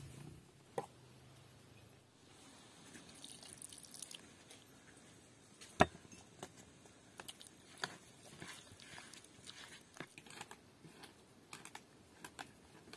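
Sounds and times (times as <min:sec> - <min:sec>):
liquid trickling into bowl: 0:03.1 - 0:04.3.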